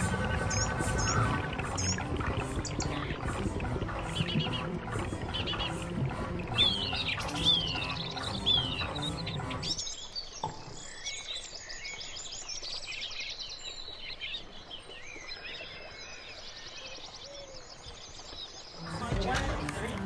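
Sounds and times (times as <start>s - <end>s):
birds chirping and twittering: 0.0s - 20.0s.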